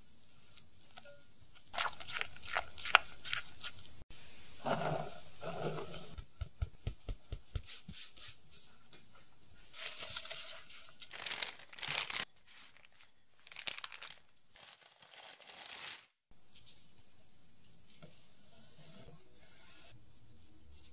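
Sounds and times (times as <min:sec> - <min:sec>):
flour sifting through metal sieve: 0:09.6 - 0:13.6
parchment paper crinkling: 0:09.8 - 0:16.2.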